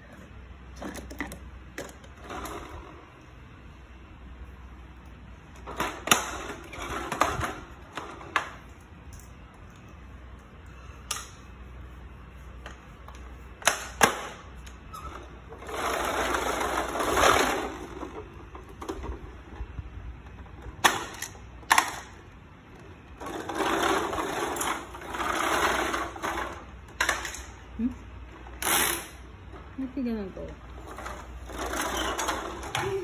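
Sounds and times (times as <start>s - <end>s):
toy truck rolling on tiled floor: 5.6s - 9.3s, 14.9s - 22.1s, 22.8s - 27.6s, 30.6s - 33.0s.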